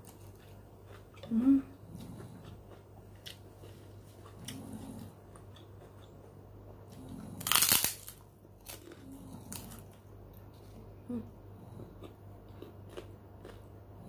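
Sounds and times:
cracker crunching: 0:07.0 - 0:10.6.

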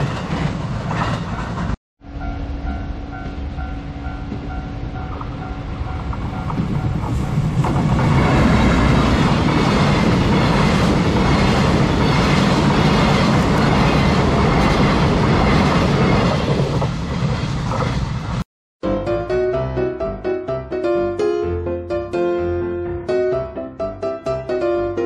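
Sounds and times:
level crossing warning bell: 0:02.1 - 0:07.0.

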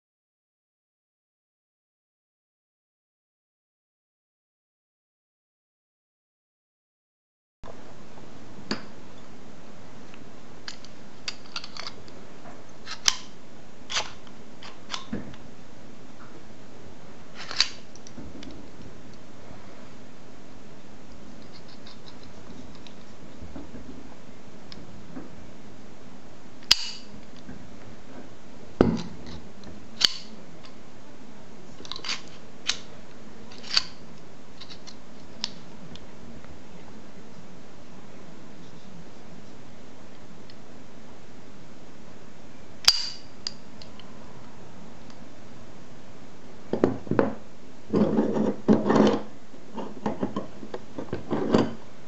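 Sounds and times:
metal bolt sliding and rattling: 0:17.4 - 0:18.7, 0:31.8 - 0:32.8, 0:33.5 - 0:34.0, 0:47.9 - 0:51.9
rifle bolt metallic clicks: 0:42.8 - 0:43.9.

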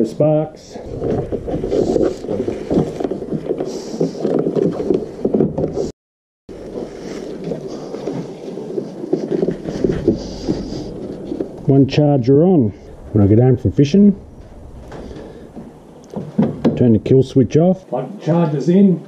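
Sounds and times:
hard plastic scraping and knocking: 0:00.8 - 0:05.9, 0:06.7 - 0:11.8.

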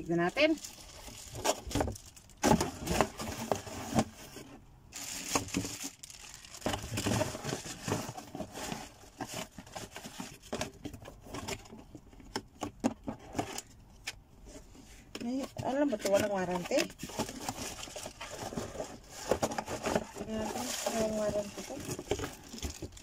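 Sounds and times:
plastic packaging crinkling: 0:00.0 - 0:04.2, 0:04.9 - 0:10.6, 0:16.4 - 0:23.0.

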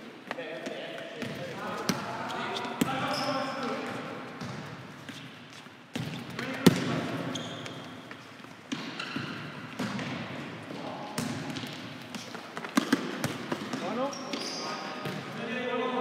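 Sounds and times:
ball kicks echoing in hall: 0:00.0 - 0:16.0
shoe squeaks: 0:02.2 - 0:03.8, 0:07.1 - 0:09.5, 0:13.8 - 0:15.0
ball bouncing: 0:05.9 - 0:15.3.

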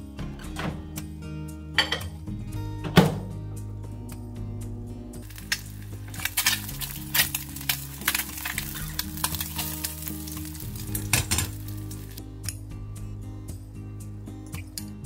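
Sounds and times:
crackling pops: 0:05.2 - 0:12.2
egg sizzling in oil: 0:05.2 - 0:12.2.

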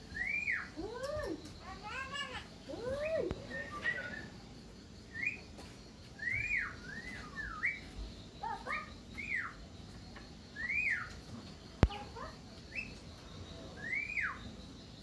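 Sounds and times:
caged bird singing whistled notes: 0:00.0 - 0:01.2, 0:05.1 - 0:05.5, 0:06.2 - 0:08.0, 0:08.7 - 0:09.6, 0:10.6 - 0:11.1, 0:12.7 - 0:13.0, 0:13.8 - 0:14.5.

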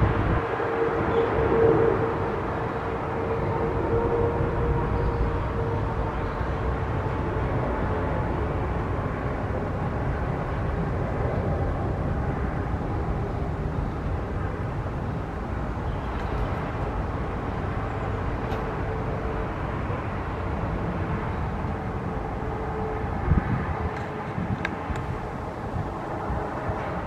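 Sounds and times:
jet engine rumble: 0:00.0 - 0:27.0.

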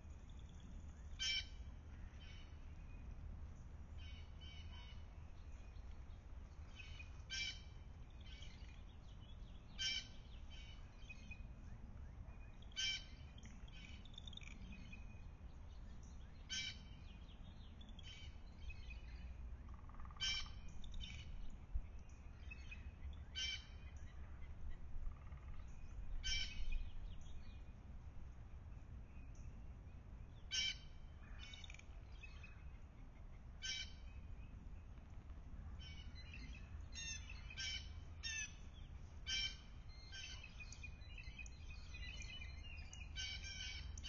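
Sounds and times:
low steady rumble: 0:00.0 - 0:44.0
bird calling: 0:01.0 - 0:01.6, 0:09.8 - 0:10.9, 0:19.8 - 0:21.3, 0:26.2 - 0:26.8, 0:30.5 - 0:32.5, 0:39.2 - 0:44.0.

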